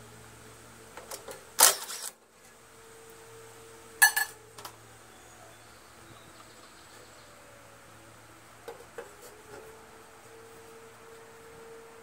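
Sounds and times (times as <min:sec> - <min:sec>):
cordless driver whirring: 0:01.6 - 0:02.2.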